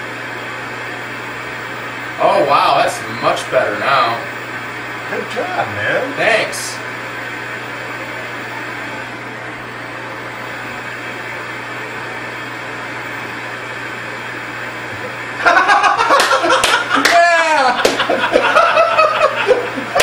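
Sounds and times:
constant low hum: 0.0 - 20.0
tv static hiss: 0.0 - 20.0
laughter: 15.4 - 20.0
sharp slaps: 16.2 - 17.2, 17.8 - 18.1.

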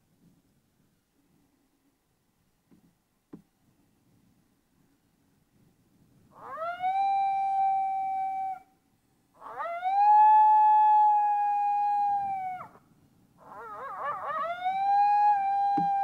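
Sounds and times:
coyote howling: 6.3 - 8.7, 9.4 - 12.8, 13.4 - 16.0.

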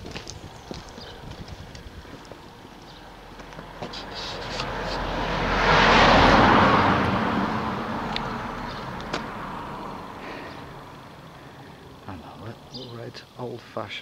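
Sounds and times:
car driving past: 2.9 - 12.0.

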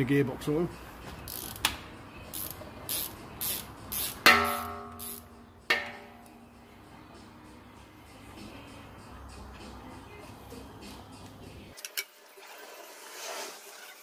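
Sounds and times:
socket wrench ratcheting: 1.3 - 1.7, 2.3 - 5.3
tool clinking against metal: 4.3 - 6.2.

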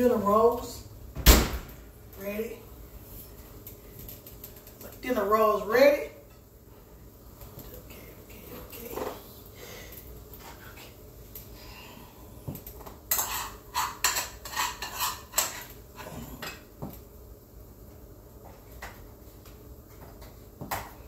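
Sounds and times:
plate and cutlery clattering: 13.1 - 16.7.

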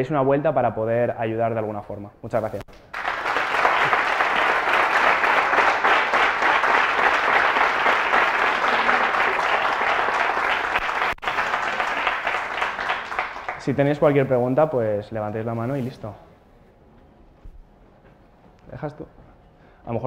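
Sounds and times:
audience applauding: 2.7 - 14.2.

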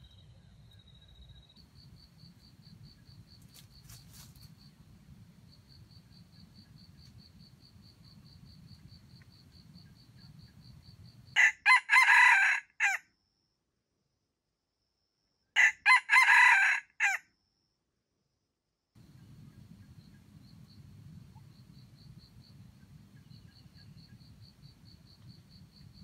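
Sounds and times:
faint insect trill: 0.0 - 26.0
rooster crowing: 11.4 - 13.0, 15.6 - 17.2.

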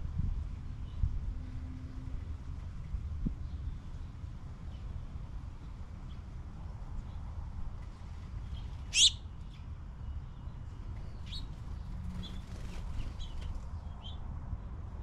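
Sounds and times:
songbirds chirping: 2.5 - 14.3
bird wings fluttering: 11.5 - 13.8.

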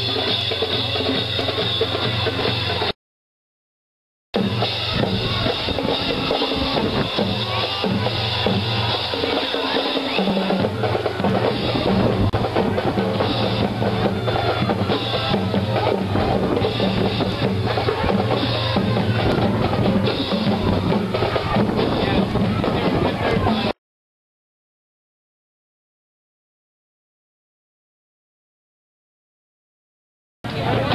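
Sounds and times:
drums playing a steady beat: 0.0 - 3.0, 4.4 - 23.8.

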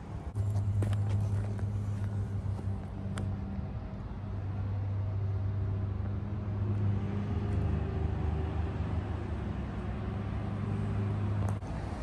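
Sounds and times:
vehicle engine running: 0.3 - 7.6.

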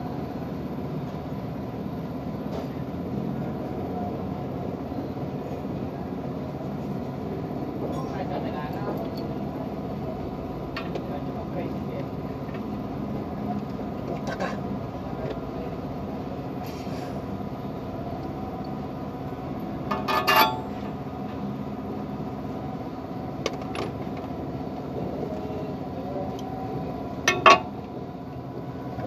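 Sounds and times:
metal tools clinking: 19.9 - 20.8.

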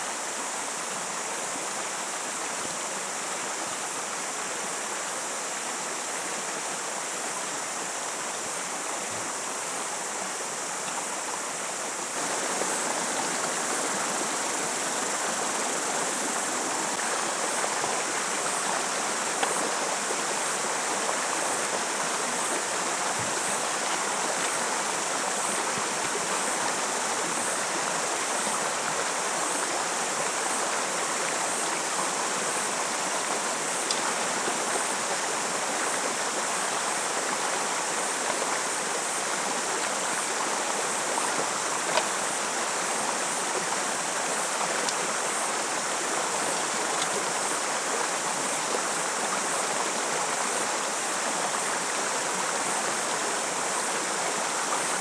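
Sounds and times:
creek rushing over boulders: 0.0 - 55.0.

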